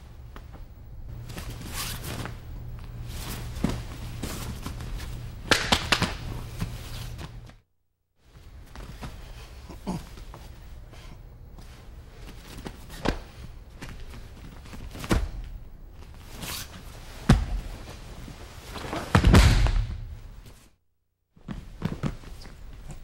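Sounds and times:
steady low hum: 0.0 - 7.6, 8.2 - 20.6
thuds of bodies on a mat: 12.5 - 15.6, 17.1 - 18.0, 18.7 - 20.2.

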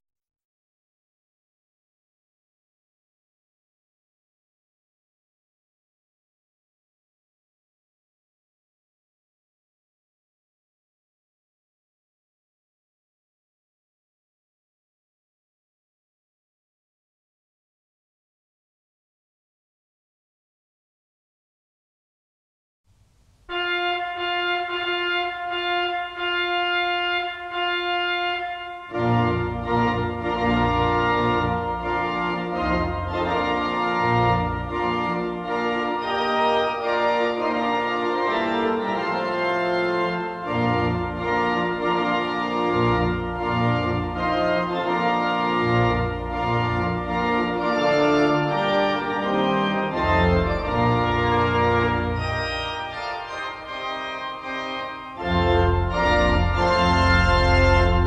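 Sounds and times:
deep organ bass notes: 23.5 - 58.0
organ playing sustained chords: 23.5 - 58.0.

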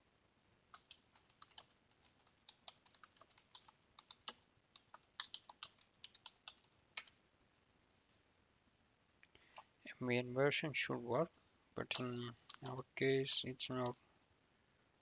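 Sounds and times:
keyboard typing clicks: 0.7 - 7.2, 11.8 - 14.0.

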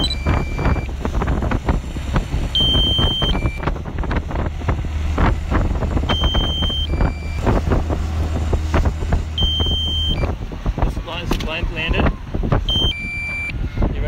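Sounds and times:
two-note electronic beep: 0.0 - 0.9, 2.6 - 3.6, 6.1 - 7.4, 9.4 - 10.3, 12.7 - 13.5
outboard motor rumbling: 0.0 - 14.0
wind buffeting microphone: 0.0 - 14.0.

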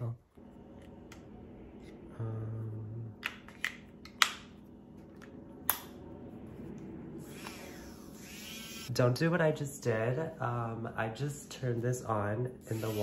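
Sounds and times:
milk frother whirring: 7.2 - 8.9.

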